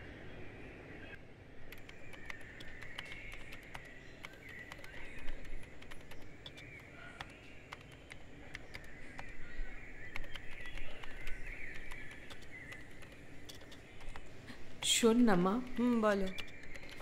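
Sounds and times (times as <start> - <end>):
laptop keyboard typing: 1.7 - 17.0
birds chattering and calling: 1.9 - 17.0.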